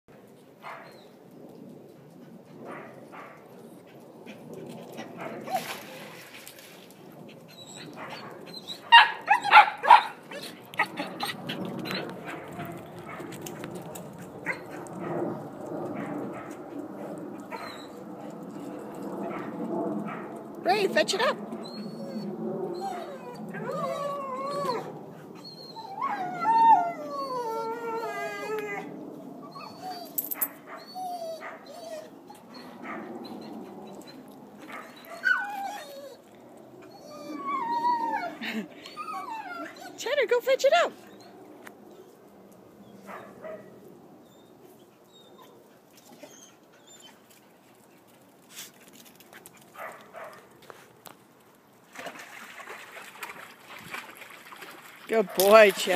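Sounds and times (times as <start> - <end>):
dog whining and howling: 7.5 - 12.7, 21.6 - 40.0, 42.8 - 47.2
dog whimpering: 21.2 - 28.9, 30.8 - 32.8, 36.9 - 40.0.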